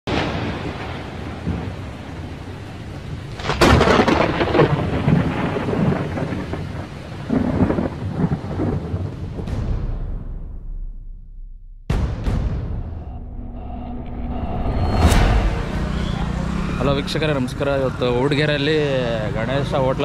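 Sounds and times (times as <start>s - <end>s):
rain hiss: 0.1s - 9.5s, 16.4s - 20.0s
thunderclap: 0.1s - 18.0s
rolling thunder rumbles: 0.1s - 18.8s.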